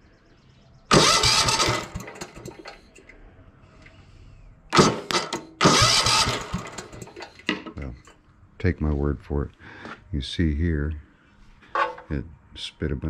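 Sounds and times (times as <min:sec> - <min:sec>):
recoil rope pull-start: 0:00.9 - 0:02.8, 0:04.8 - 0:07.3
engine turning over: 0:00.9 - 0:03.1, 0:04.8 - 0:07.5.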